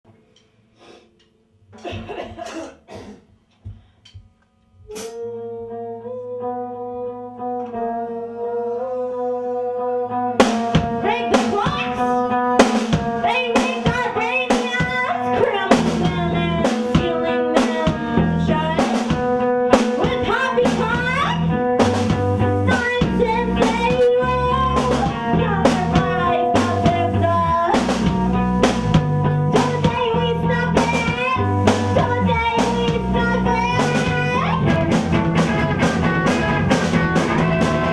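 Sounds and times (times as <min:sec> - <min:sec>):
band music: 0:04.9 - 0:37.9
drum kit beat: 0:10.4 - 0:37.9.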